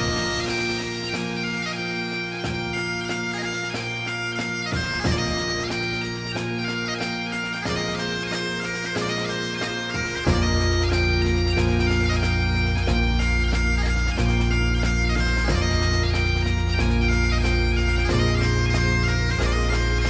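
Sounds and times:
bagpipe tune with drones: 0.0 - 20.0.

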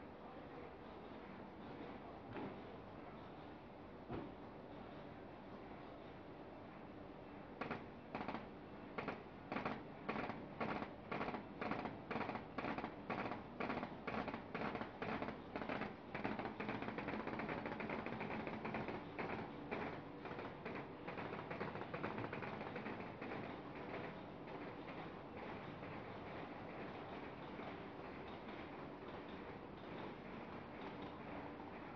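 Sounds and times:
machine mechanical hum: 0.0 - 31.9
machine rhythmic clatter: 7.5 - 31.9.

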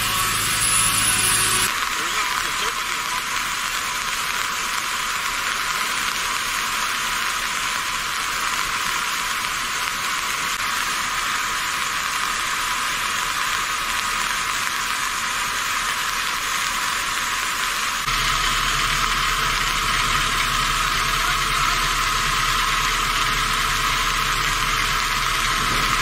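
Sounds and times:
heavy rain hissing: 0.0 - 26.0.

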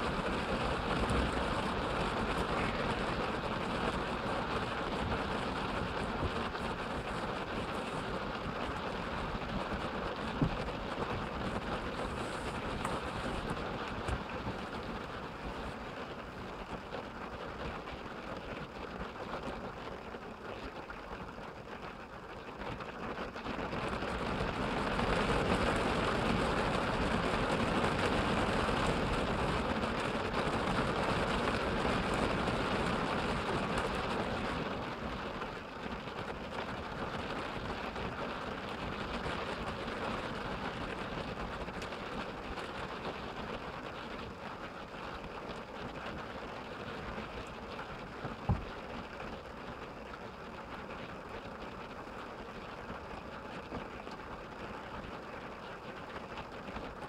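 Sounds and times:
rain on a car roof: 0.0 - 57.0.

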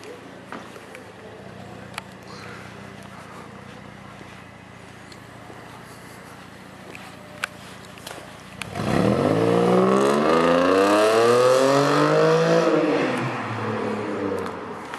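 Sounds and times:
car engine accelerating hard: 8.6 - 14.8.

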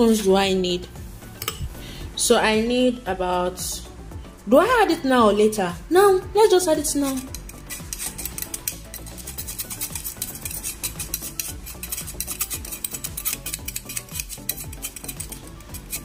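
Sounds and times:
background music: 0.0 - 16.0
metal spoon scraping a mesh sieve: 6.8 - 16.0.

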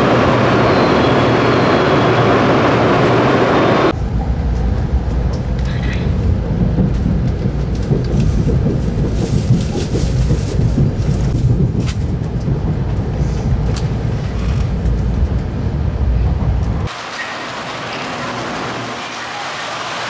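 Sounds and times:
moving vehicle rumble: 0.0 - 16.9.

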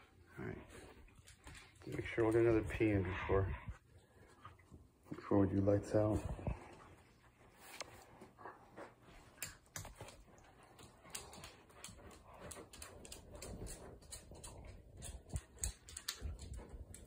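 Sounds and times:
dog claws clicking on wooden floor: 1.2 - 2.9, 9.2 - 17.0.

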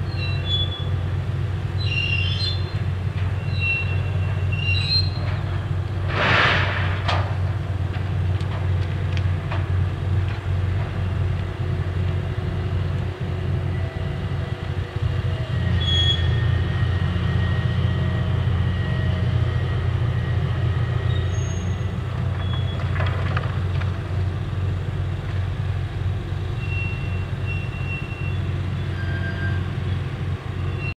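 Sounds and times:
crane engine and winch droning: 0.0 - 6.1, 6.7 - 31.0
faint high squeaks: 0.1 - 0.9, 3.4 - 5.5, 15.7 - 16.4, 21.1 - 22.9, 26.6 - 29.8.

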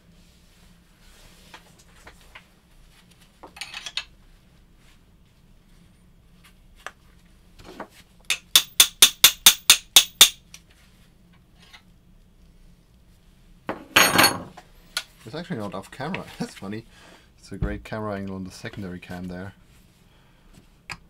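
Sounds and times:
sharp metallic taps: 8.3 - 10.4.

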